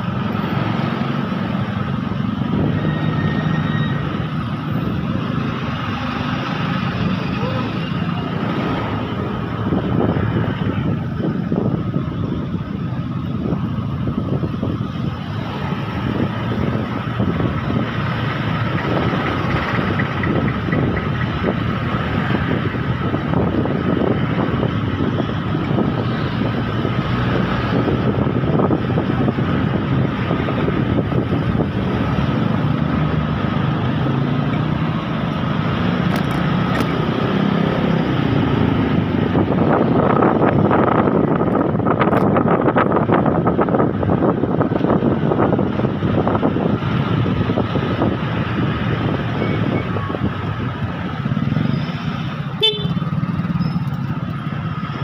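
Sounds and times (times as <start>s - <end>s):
surrounding traffic: 0.0s - 55.0s
scooter engine: 15.0s - 22.8s.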